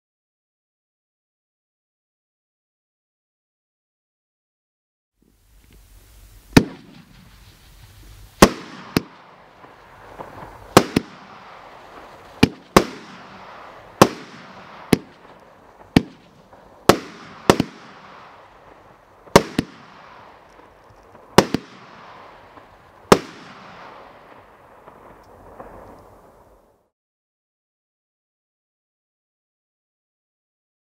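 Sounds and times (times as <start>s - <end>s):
steady hiss of burning sparks: 5.2s - 26.9s
firework reports: 5.4s - 26.9s.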